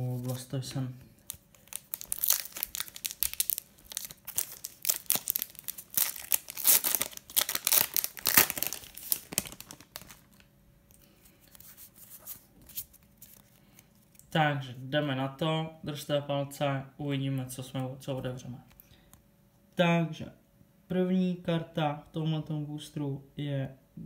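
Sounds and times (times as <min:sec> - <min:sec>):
foil wrapper tearing and crinkling: 0:01.3 - 0:10.4
cards being handled: 0:11.0 - 0:14.2.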